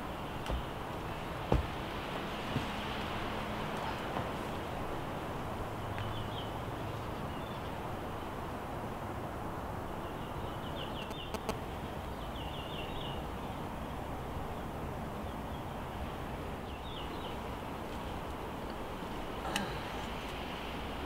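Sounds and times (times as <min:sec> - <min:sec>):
outdoor background noise: 0:00.0 - 0:21.0
small bird chirping: 0:10.2 - 0:11.6.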